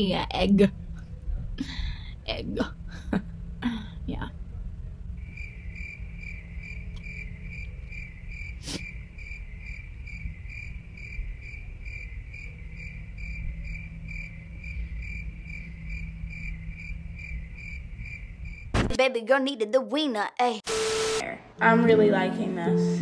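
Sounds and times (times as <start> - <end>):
cricket chirping: 5.2 - 18.8.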